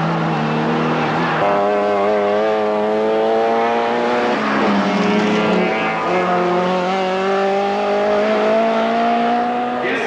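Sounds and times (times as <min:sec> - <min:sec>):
rally car engine at high revs: 0:00.0 - 0:10.0.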